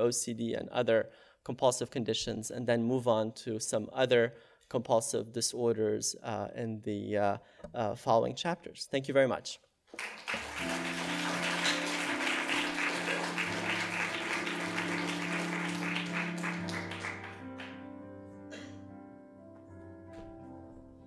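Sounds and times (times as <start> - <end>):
audience applauding: 10.0 - 17.8
music: 10.0 - 21.0.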